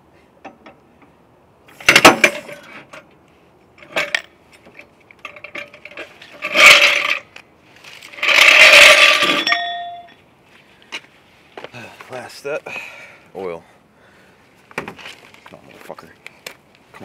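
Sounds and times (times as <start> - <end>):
metal jack clanking on pavement: 1.7 - 3.1, 3.8 - 7.4, 8.1 - 10.2
metallic ring: 8.2 - 10.2.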